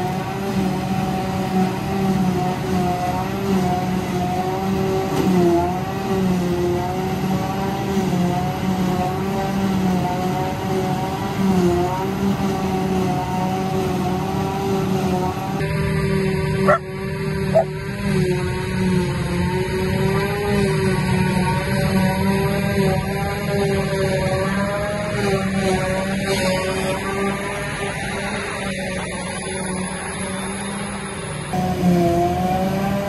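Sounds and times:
forage harvester high-pitched drone: 0.0 - 33.0
tractor running: 0.0 - 33.0.

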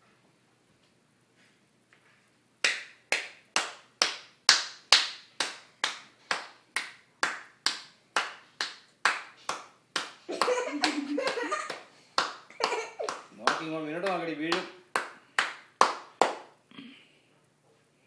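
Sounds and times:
hands clapping: 2.6 - 16.6.

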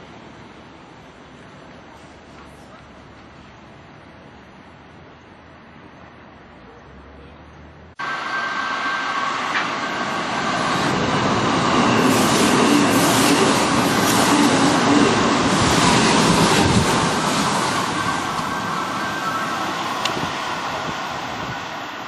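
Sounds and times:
electric train passing: 8.0 - 22.0.

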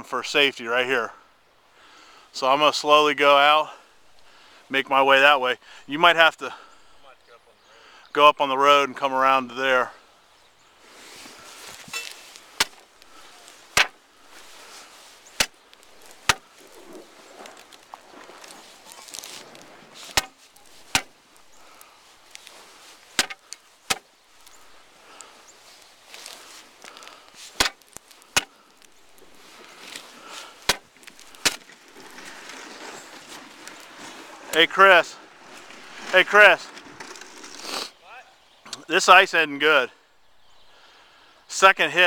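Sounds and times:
steel bar striking ice: 11.9 - 12.8, 13.7 - 14.0, 15.4 - 15.6, 16.2 - 16.5, 20.0 - 21.2, 23.2 - 24.0, 27.6 - 28.5, 30.7 - 31.6.

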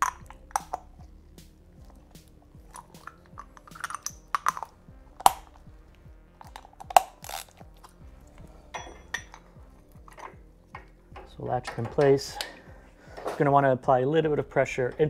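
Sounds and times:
faint background music: 0.0 - 15.0
metal tool clicks and clinks: 2.7 - 4.7, 8.7 - 12.6.

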